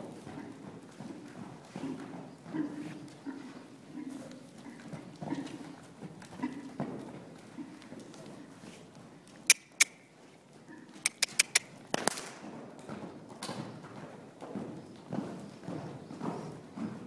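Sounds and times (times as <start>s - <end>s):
muffled hoofbeats on sand: 0.0s - 17.0s
sharp clicks: 9.5s - 10.0s, 11.0s - 12.3s.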